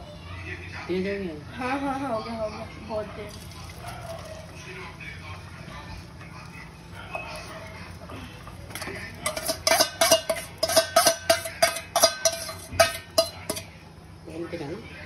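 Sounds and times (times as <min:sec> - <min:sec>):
utensil beating eggs in steel bowl: 0:08.7 - 0:13.7.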